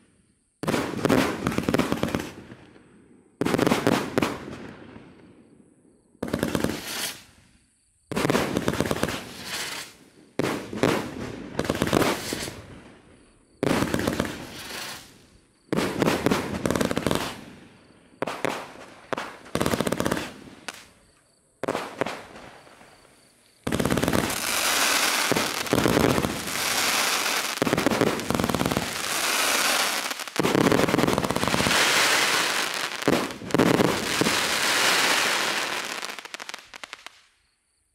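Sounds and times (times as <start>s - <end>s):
firework battery firing rapid volleys: 23.7s - 37.1s.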